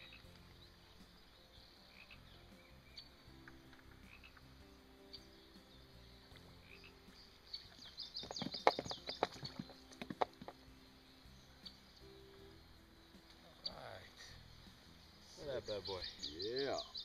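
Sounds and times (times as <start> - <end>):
fish splashing in water: 7.7 - 10.6.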